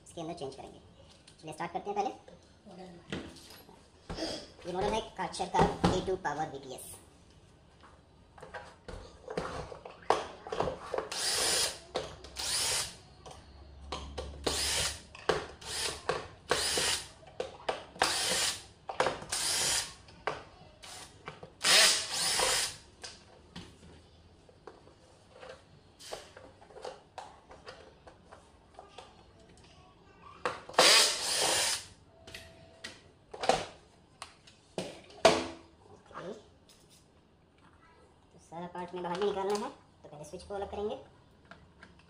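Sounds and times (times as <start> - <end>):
cordless drill whirring: 11.1 - 11.8, 12.4 - 13.0, 14.4 - 15.0, 15.6 - 17.1, 18.0 - 18.6, 19.3 - 19.9, 20.8 - 22.8, 30.8 - 31.9.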